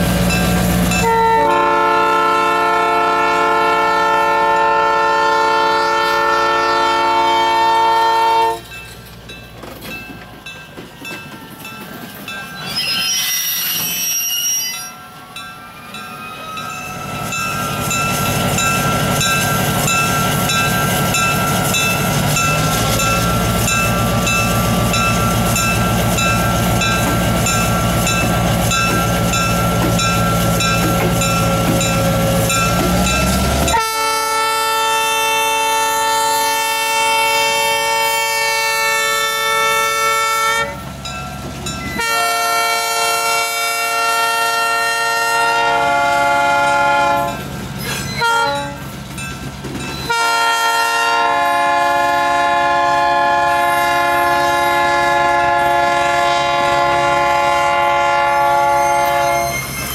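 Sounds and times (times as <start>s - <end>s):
locomotive air horn blasts: 0.9s - 8.6s, 33.7s - 40.8s, 42.0s - 47.4s, 48.2s - 48.8s, 50.1s - 59.7s.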